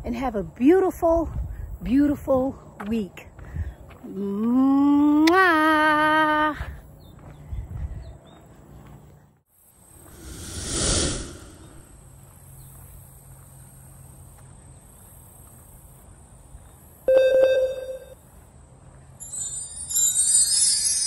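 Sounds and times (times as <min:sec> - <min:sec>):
whoosh: 0:10.1 - 0:12.0
short tone: 0:17.1 - 0:18.2
bright jingling: 0:19.2 - 0:21.0.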